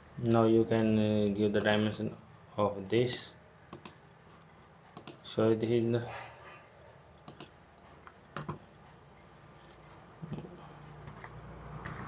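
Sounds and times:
mouse and keyboard clicks: 3.1 - 4.0, 7.2 - 7.6.

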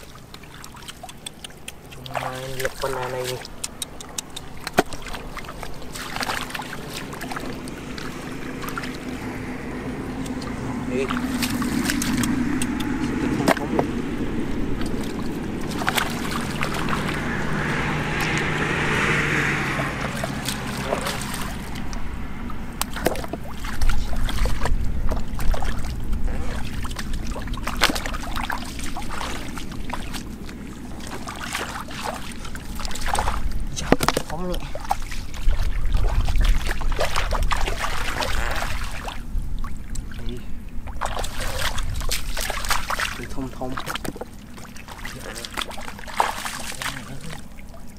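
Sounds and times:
muddy water splashing: 0.0 - 47.9
low rumble: 5.1 - 33.9.

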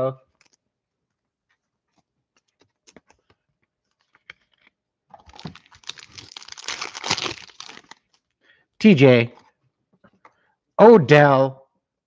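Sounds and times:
foil card pack tearing open: 5.2 - 8.0.

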